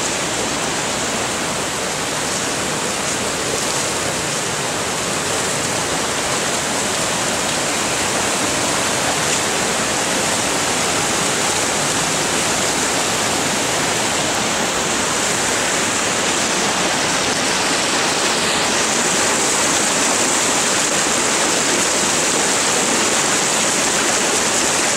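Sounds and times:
water rushing over rocks: 0:00.0 - 0:24.9.

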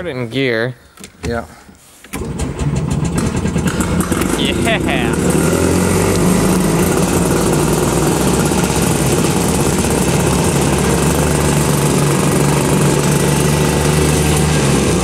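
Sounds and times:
vehicle engine running: 0:02.3 - 0:15.0.

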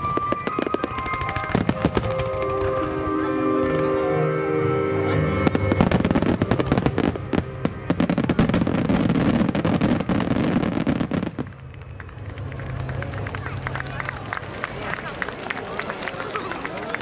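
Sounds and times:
fireworks bursting and crackling: 0:00.0 - 0:03.1, 0:05.4 - 0:13.5.

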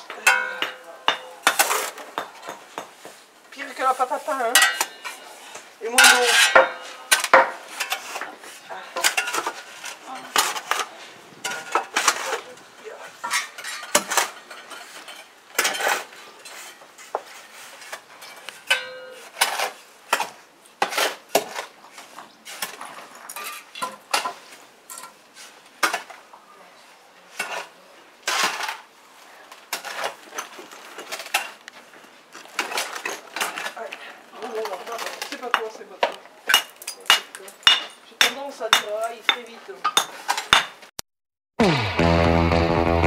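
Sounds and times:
shovels scraping sand: 0:01.5 - 0:02.1, 0:03.0 - 0:24.6, 0:27.3 - 0:28.9, 0:29.7 - 0:31.6.

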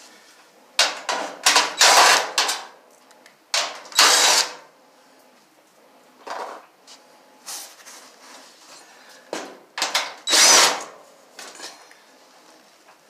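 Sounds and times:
power drill running: 0:03.9 - 0:04.6, 0:10.2 - 0:10.9.

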